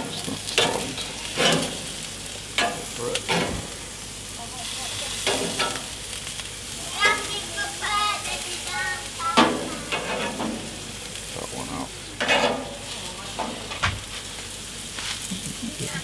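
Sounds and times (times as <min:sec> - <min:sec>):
meat sizzling on a grill: 0:00.0 - 0:16.0
metal tongs clacking: 0:02.6 - 0:03.5.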